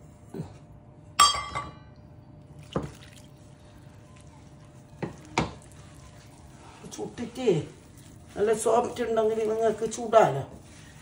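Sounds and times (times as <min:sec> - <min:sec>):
hand mixing dough in plastic bowl: 0:02.6 - 0:11.0.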